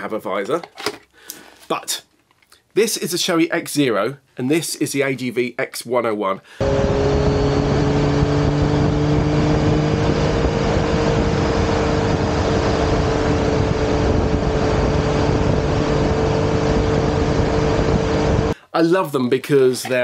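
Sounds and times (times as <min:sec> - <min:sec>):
motorcycle engine drone: 0:06.6 - 0:18.6
wind rushing over microphone: 0:06.6 - 0:18.6.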